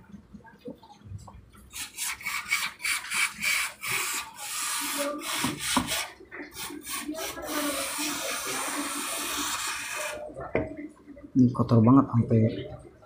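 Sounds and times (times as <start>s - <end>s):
aerosol spray hissing: 2.0s - 10.2s.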